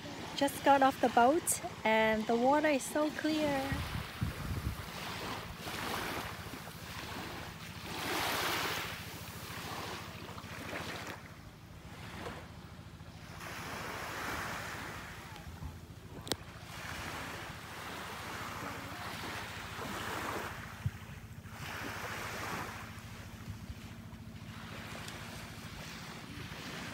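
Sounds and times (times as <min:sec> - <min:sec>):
small waves washing on shore: 0:00.0 - 0:26.9
wind buffeting microphone: 0:03.6 - 0:05.6.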